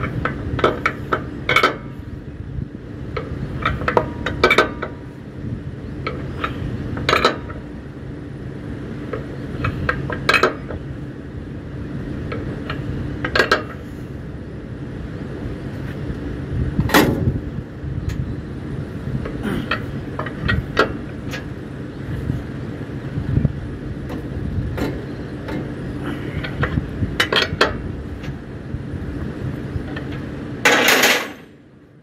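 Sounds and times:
metal-on-metal clanks: 0:00.0 - 0:02.0, 0:03.2 - 0:05.1, 0:06.0 - 0:07.6, 0:09.1 - 0:10.8, 0:12.3 - 0:13.8, 0:26.4 - 0:28.4, 0:29.9 - 0:31.6
steady low rumble: 0:00.0 - 0:32.0.

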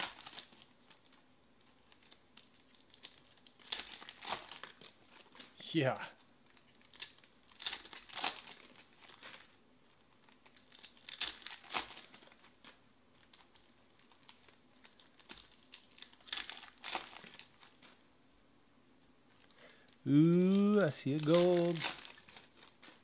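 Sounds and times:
card pack wrappers crinkling and tearing: 0:00.0 - 0:05.6, 0:06.4 - 0:18.0, 0:19.3 - 0:23.0.

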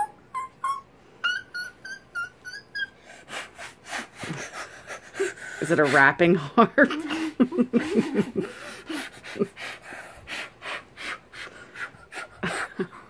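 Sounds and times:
breathy puffs of air: 0:03.0 - 0:06.1, 0:08.0 - 0:12.7.

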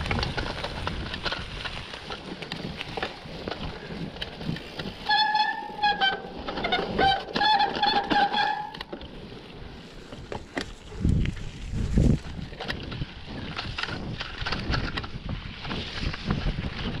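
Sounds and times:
wind rumble on microphone: 0:00.0 - 0:05.1, 0:09.6 - 0:17.0
bike rattling on rough trail: 0:00.0 - 0:17.0
disc brakes squealing: 0:05.0 - 0:08.9.

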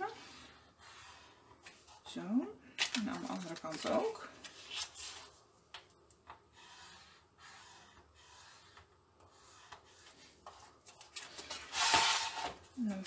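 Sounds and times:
bone folder rubbing on card: 0:06.5 - 0:10.7.

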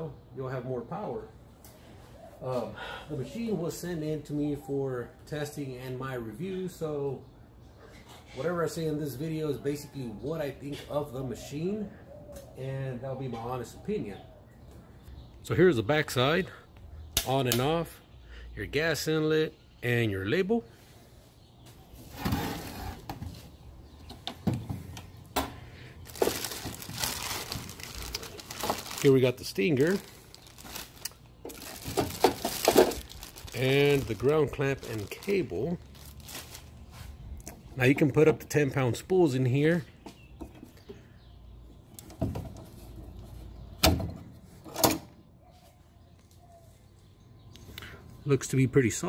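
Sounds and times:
plastic bags crinkling: 0:26.0 - 0:36.8.

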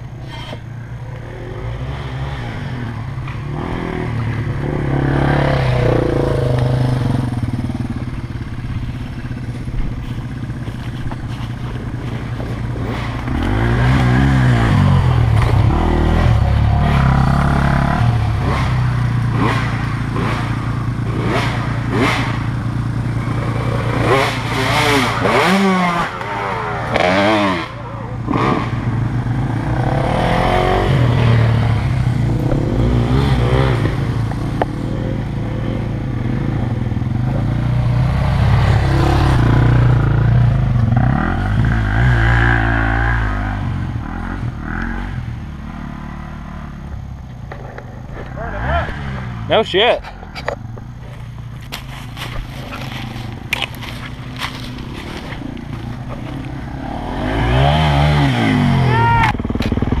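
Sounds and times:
dirt bike engine revving: 0:00.0 - 0:50.0, 0:50.6 - 1:00.0.

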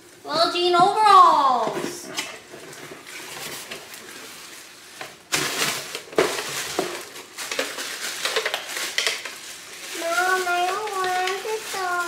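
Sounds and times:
shopping bag rustling: 0:02.4 - 0:12.0.

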